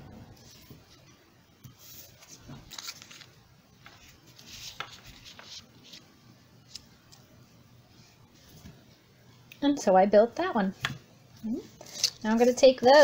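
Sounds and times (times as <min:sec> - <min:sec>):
paper rustling on a table: 0:00.4 - 0:06.1.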